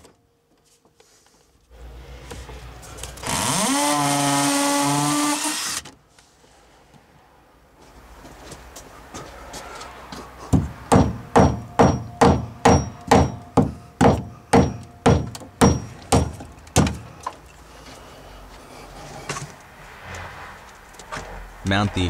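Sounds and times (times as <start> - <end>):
hammer striking wall: 10.5 - 17.0.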